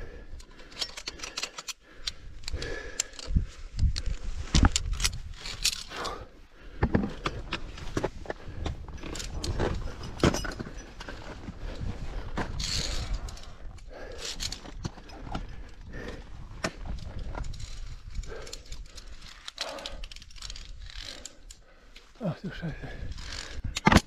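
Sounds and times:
carabiners clicking against steel cable: 0.2 - 6.3, 7.0 - 11.2, 12.4 - 24.0
metal gear jangling: 0.6 - 1.8, 4.8 - 6.2, 12.6 - 15.2, 17.0 - 21.6
wind rumbling on microphone: 2.2 - 5.9
gear scraping over rock: 22.7 - 23.7.

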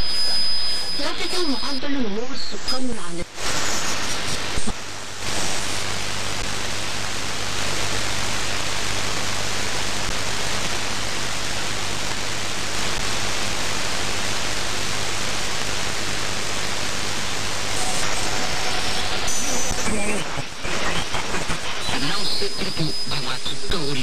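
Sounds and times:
radio static hiss: 0.0 - 24.0
low hum: 17.5 - 21.9.

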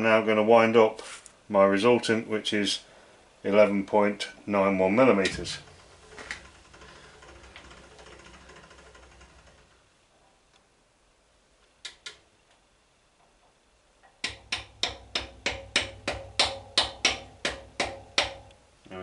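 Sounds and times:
milling machine head clicking: 5.2 - 9.8.

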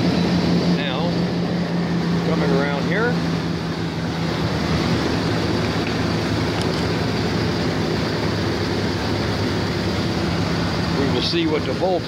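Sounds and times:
truck engine idling: 0.0 - 12.0.

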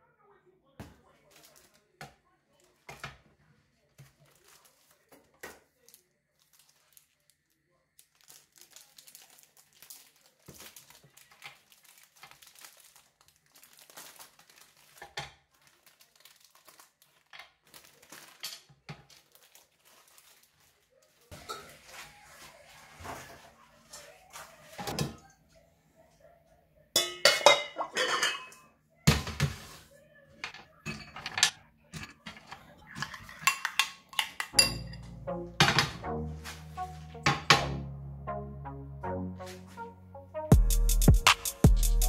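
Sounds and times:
chocolate wrapper crinkling and tearing: 1.3 - 1.9, 4.1 - 21.3.

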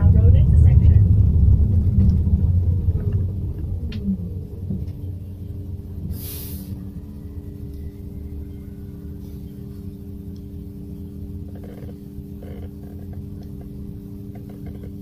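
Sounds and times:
road rumble: 0.0 - 15.0
steady electric hum: 0.0 - 15.0
air brakes hissing: 6.0 - 6.9.

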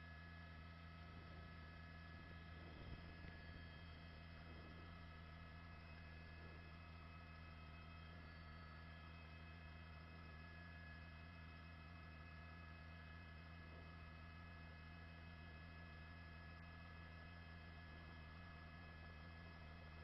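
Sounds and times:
faint electrical hum: 0.0 - 8.6.

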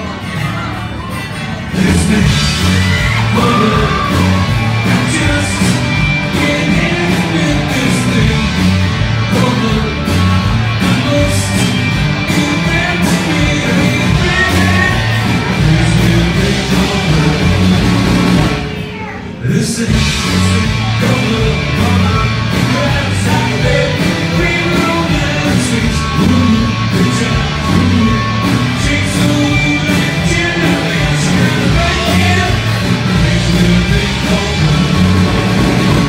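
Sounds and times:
live rock band playing: 0.0 - 36.0
person singing: 0.0 - 36.0.

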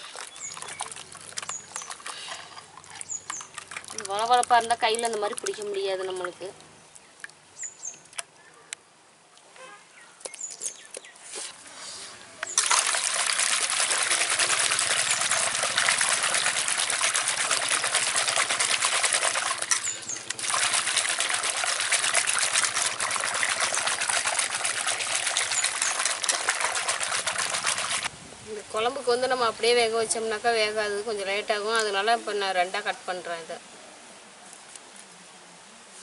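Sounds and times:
water pouring into steel bowl: 0.0 - 6.4, 12.5 - 28.1
wet squelches and splashes: 0.0 - 7.4, 12.4 - 28.1.

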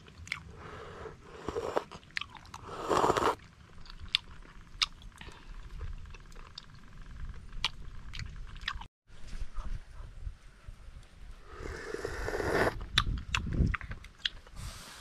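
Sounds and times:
chewing: 1.4 - 8.9, 12.8 - 14.5.

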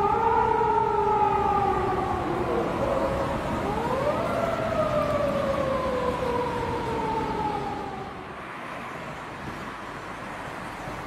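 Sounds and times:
police siren wailing: 0.0 - 8.4
road traffic noise: 0.0 - 11.0.

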